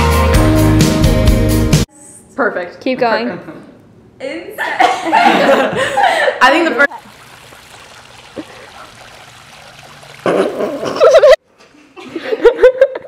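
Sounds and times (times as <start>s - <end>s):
bursts of laughter: 10.2s - 11.4s.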